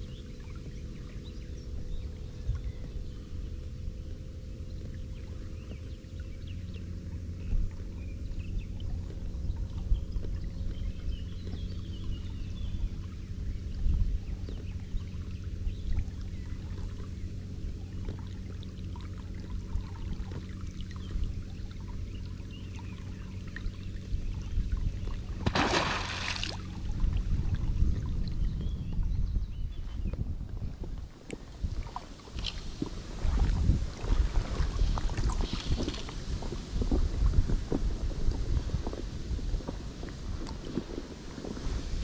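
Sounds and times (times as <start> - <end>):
low background rumble: 0.0 - 42.0
soft water sounds: 0.0 - 42.0
beaver splash: 25.4 - 26.8.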